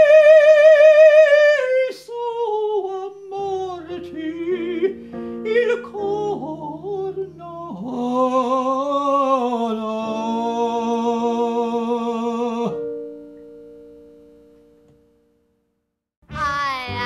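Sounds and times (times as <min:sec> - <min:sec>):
man singing with vibrato: 0:00.0 - 0:12.9.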